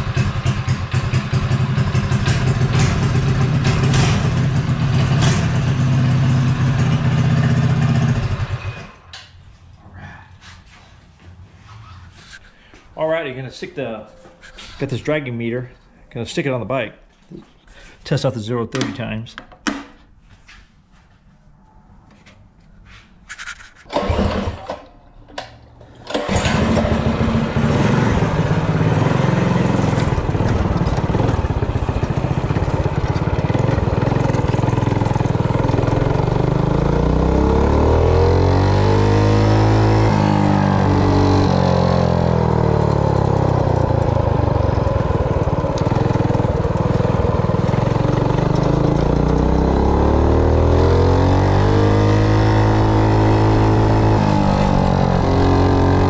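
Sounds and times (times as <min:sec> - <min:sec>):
mini bike engine running: 0:00.0 - 0:09.1, 0:23.9 - 0:24.8, 0:26.0 - 0:56.0.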